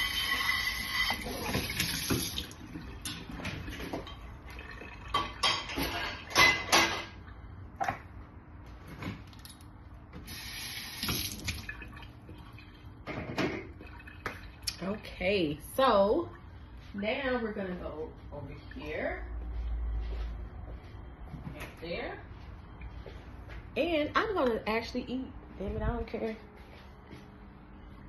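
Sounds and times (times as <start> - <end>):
kitchen tap running: 0.0 - 2.6, 10.3 - 12.7
dishes and utensils clinking: 5.0 - 7.2.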